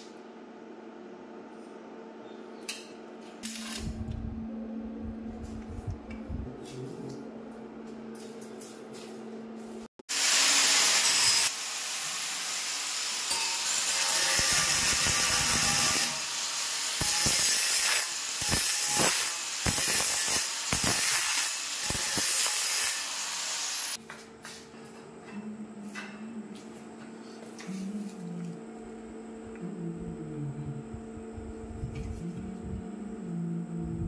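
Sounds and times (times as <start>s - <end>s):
angle grinder cutting metal: 10.1s - 24.0s.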